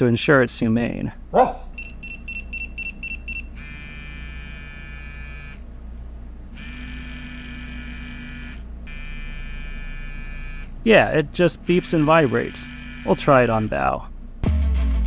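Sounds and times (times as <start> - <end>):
short high beeps: 1.8 - 3.5
vibration motor buzzing: 3.4 - 5.6, 6.5 - 10.8, 11.6 - 13.8.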